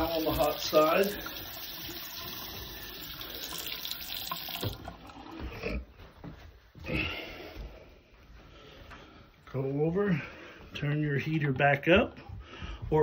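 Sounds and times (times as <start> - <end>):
sink faucet running: 0.0 - 5.5.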